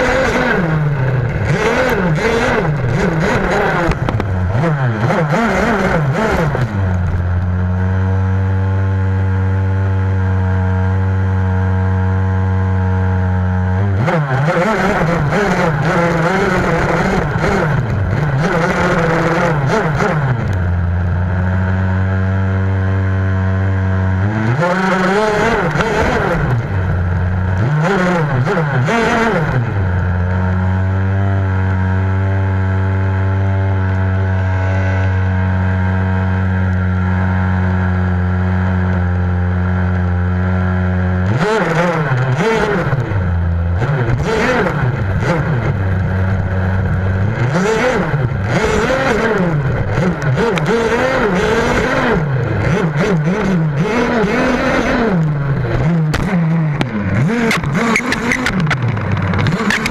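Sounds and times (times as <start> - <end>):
small two-stroke engine revving: 0.0 - 59.9
knocks over rough ground: 3.8 - 4.4.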